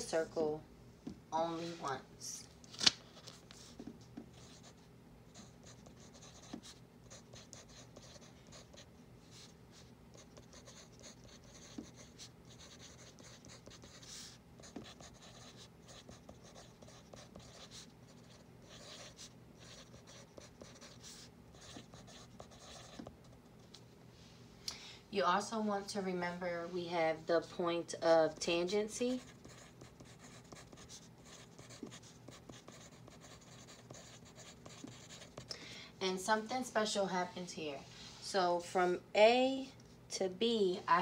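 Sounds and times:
low steady hum: 0.0 - 41.0
pencil scratching on paper: 3.6 - 23.2, 28.3 - 35.5.

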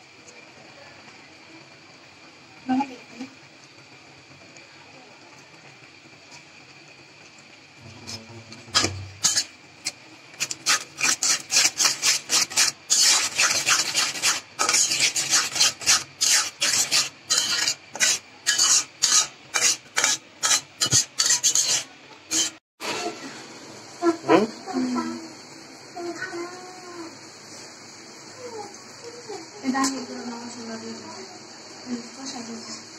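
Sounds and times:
metal spatula scraping pot: 7.8 - 22.6.

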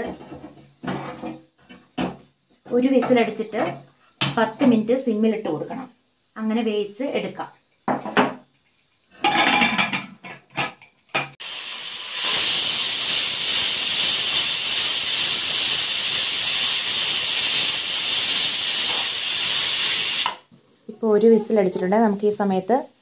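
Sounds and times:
pressure cooker whistling: 11.4 - 20.4.

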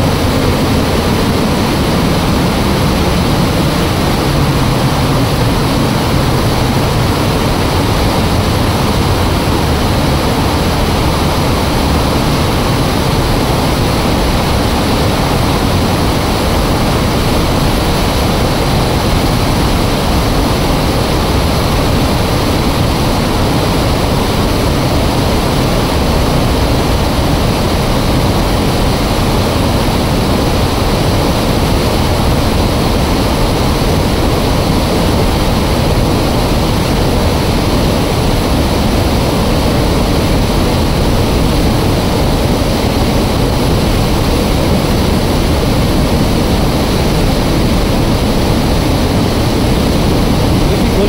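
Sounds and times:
rushing falling water: 0.0 - 51.0.

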